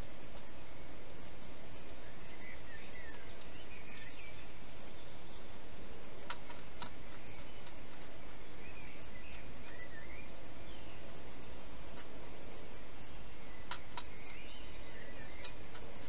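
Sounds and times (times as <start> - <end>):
faint high chirping calls: 0.0 - 16.0
steady hiss: 0.0 - 16.0
sharp clicks: 6.2 - 8.4, 13.6 - 14.4, 15.4 - 15.9.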